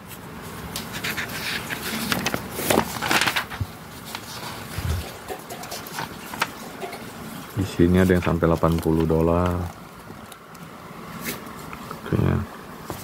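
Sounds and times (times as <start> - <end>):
magazine pages rustling: 0.0 - 10.3.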